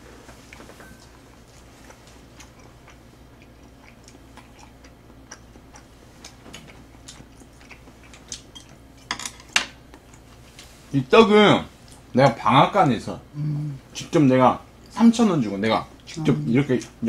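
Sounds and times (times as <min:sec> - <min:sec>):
quiet chewing: 0:00.2 - 0:09.1, 0:09.8 - 0:10.9, 0:11.8 - 0:12.1.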